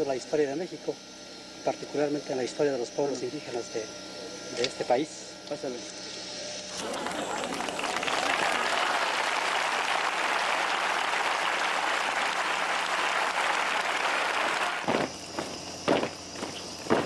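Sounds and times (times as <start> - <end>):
crowd applauding: 6.7 - 14.9.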